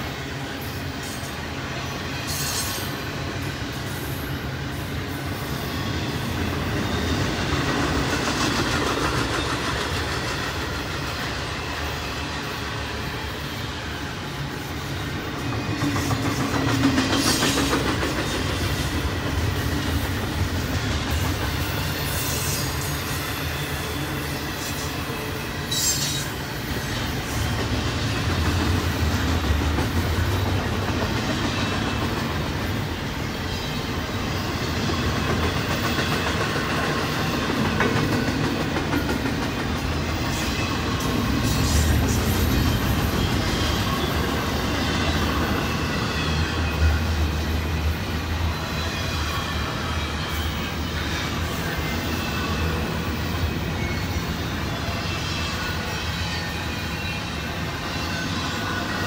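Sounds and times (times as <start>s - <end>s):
train wheels rolling on rails: 0.0s - 59.0s
high-pitched wheel squeals: 21.5s - 27.1s.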